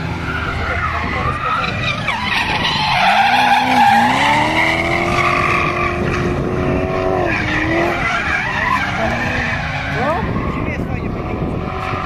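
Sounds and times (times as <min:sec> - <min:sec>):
car engine revving hard: 0:00.0 - 0:12.0
tyres squealing: 0:00.2 - 0:06.3.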